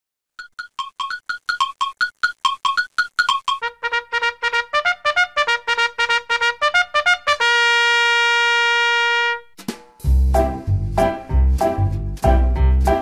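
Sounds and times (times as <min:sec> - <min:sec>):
intro music melody: 0:10.0 - 0:13.0.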